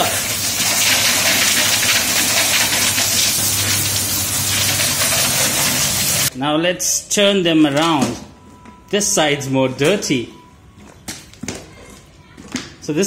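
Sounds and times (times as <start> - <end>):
pressure washer spray hissing: 0.0 - 6.3.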